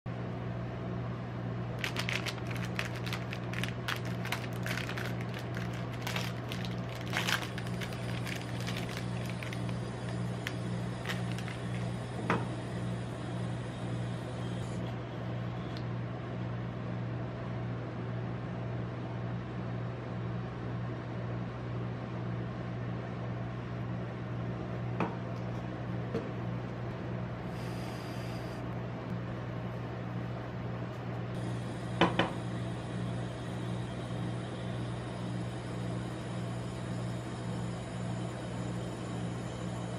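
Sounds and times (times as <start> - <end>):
refrigeration unit humming: 0.1 - 39.9
plastic wrapper crinkling: 1.8 - 11.9.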